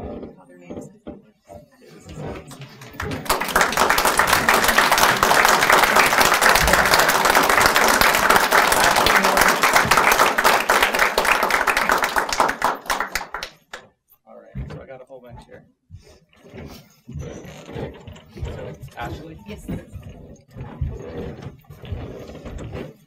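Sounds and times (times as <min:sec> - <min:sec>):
audience applauding: 0:02.5 - 0:13.8.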